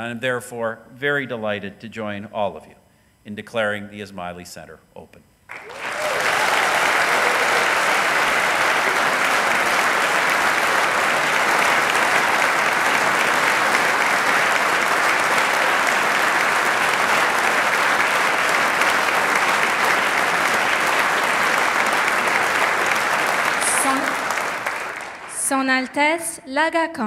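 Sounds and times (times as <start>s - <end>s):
audience applauding: 5.5s - 25.6s.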